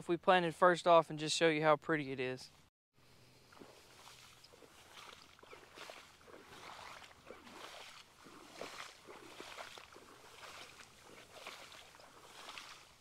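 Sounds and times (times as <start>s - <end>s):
footsteps wading through water: 3.3s - 13.0s
leaves brushing past: 3.4s - 13.0s.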